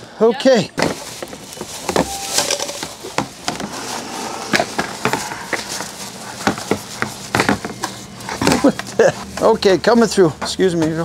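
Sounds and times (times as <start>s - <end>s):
busy store background noise: 0.0s - 11.0s
plastic pipes knocking and clattering: 6.4s - 7.8s, 8.4s - 8.9s.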